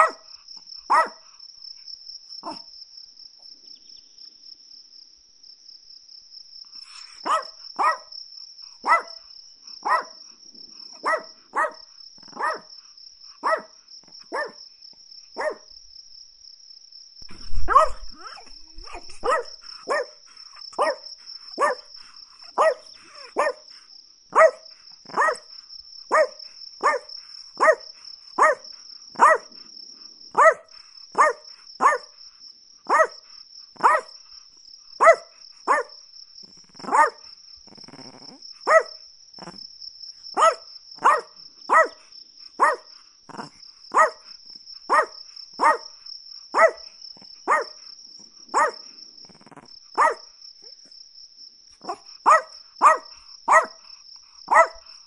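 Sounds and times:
small dog yapping: 0:00.0 - 0:00.2, 0:00.9 - 0:01.2, 0:02.4 - 0:02.7, 0:06.9 - 0:08.1, 0:08.8 - 0:09.1, 0:09.8 - 0:10.2, 0:11.0 - 0:12.7, 0:13.4 - 0:13.7, 0:14.3 - 0:14.6, 0:15.4 - 0:15.6, 0:17.3 - 0:23.6, 0:24.4 - 0:25.5, 0:26.1 - 0:27.8, 0:28.4 - 0:28.6, 0:29.2 - 0:29.5, 0:30.4 - 0:30.6, 0:31.2 - 0:32.1, 0:32.9 - 0:33.2, 0:33.8 - 0:34.1, 0:35.0 - 0:35.9, 0:36.7 - 0:37.2, 0:37.9 - 0:39.6, 0:40.4 - 0:42.0, 0:42.6 - 0:44.3, 0:44.9 - 0:45.9, 0:46.6 - 0:46.8, 0:47.5 - 0:47.8, 0:48.5 - 0:48.8, 0:49.4 - 0:50.2, 0:51.8 - 0:53.8, 0:54.5 - 0:54.9.

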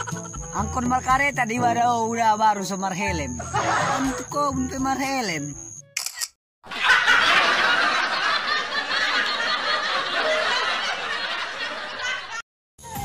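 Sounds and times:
crowd laughing: 0:00.0 - 0:00.6, 0:03.4 - 0:04.2, 0:06.6 - 0:12.4.

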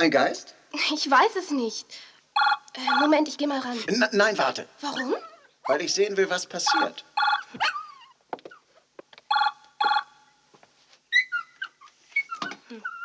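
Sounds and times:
telephone ringing: 0:06.7 - 0:07.5, 0:09.3 - 0:10.2
small dog whimpering: 0:11.1 - 0:13.0.

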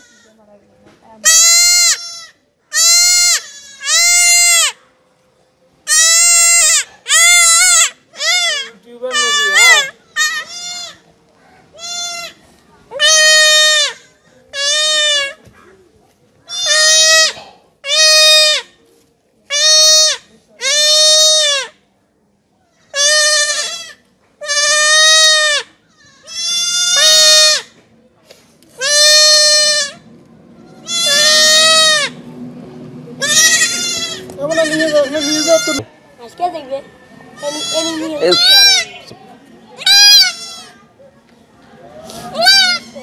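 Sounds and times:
goat kid bleating: 0:00.0 - 0:00.4, 0:01.2 - 0:04.8, 0:05.8 - 0:11.1, 0:11.8 - 0:12.4, 0:13.0 - 0:15.5, 0:16.5 - 0:18.8, 0:19.5 - 0:21.8, 0:22.8 - 0:27.8, 0:28.8 - 0:30.0, 0:30.6 - 0:32.2, 0:33.2 - 0:35.9, 0:37.4 - 0:39.1, 0:39.8 - 0:40.8, 0:42.2 - 0:43.0.

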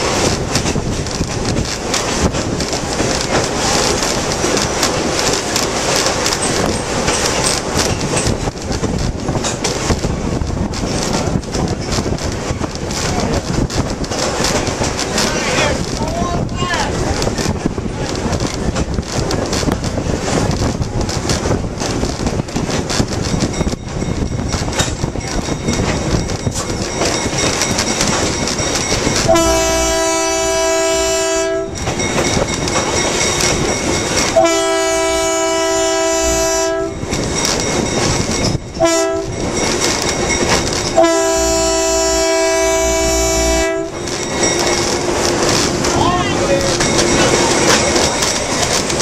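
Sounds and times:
train wheels clickety-clack: 0:00.0 - 0:49.0
locomotive air horn: 0:29.3 - 0:31.8, 0:34.4 - 0:37.0, 0:38.8 - 0:39.3, 0:41.0 - 0:44.0.

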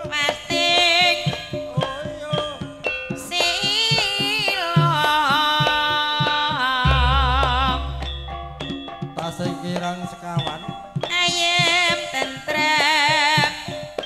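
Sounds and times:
woman singing ornamented: 0:03.2 - 0:08.8
low drum strokes: 0:06.8 - 0:09.9
sustained struck gamelan tones: 0:06.8 - 0:11.0.

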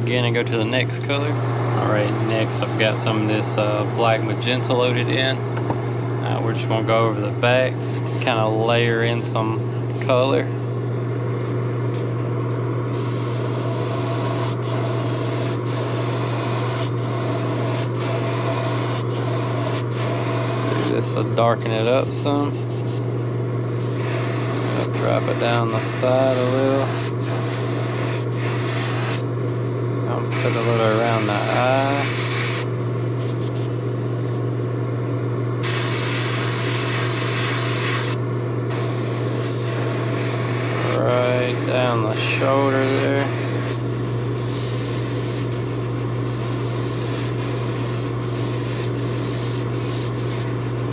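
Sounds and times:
steady low hum: 0:00.0 - 0:50.9
airbrush hissing: 0:07.8 - 0:09.3, 0:12.9 - 0:20.9, 0:21.8 - 0:23.0, 0:23.8 - 0:29.2, 0:30.3 - 0:33.7, 0:35.6 - 0:43.8, 0:44.4 - 0:45.5, 0:46.2 - 0:50.5
airbrush spray hiss: 0:46.3 - 0:50.5.

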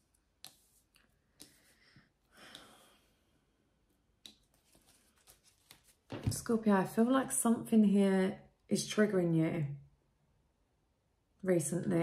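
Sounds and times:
soft rustle: 0:04.4 - 0:06.2.

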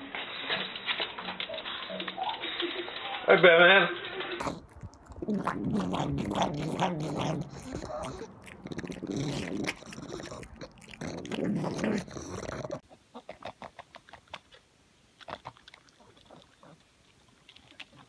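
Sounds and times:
dog chewing food: 0:04.3 - 0:14.6, 0:15.2 - 0:18.0.

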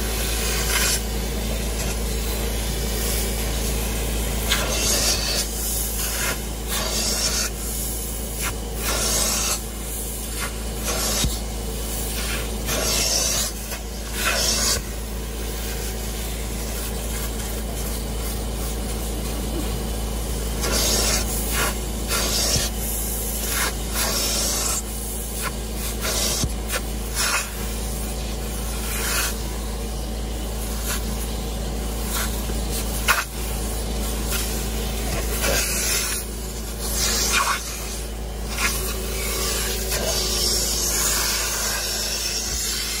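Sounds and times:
carpet extractor running: 0:00.0 - 0:43.0
upholstery tool hissing on fabric: 0:00.0 - 0:43.0.

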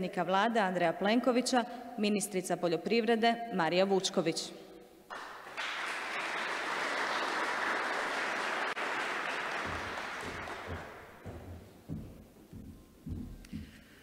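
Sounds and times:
audience applauding: 0:05.1 - 0:11.4
dull low thumps: 0:09.7 - 0:13.8.

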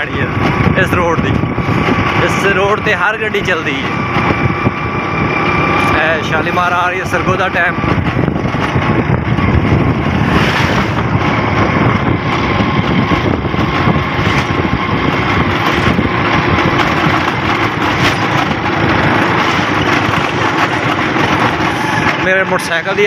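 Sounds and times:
motorcycle riding: 0:00.0 - 0:23.0.

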